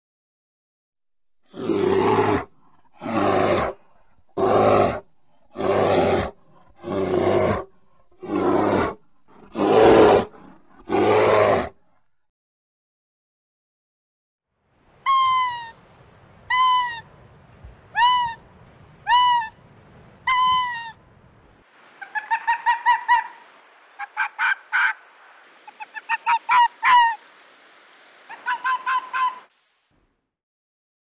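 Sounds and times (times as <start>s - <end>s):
fox yelping: 18.0s - 18.4s, 19.0s - 19.5s, 20.3s - 21.0s, 28.3s - 29.5s
fox barking yelps: 19.1s - 19.5s, 25.7s - 27.2s, 28.3s - 29.5s.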